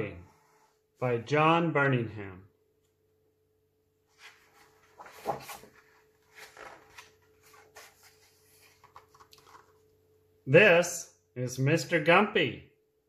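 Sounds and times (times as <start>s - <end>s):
book pages rustling: 4.1s - 9.9s.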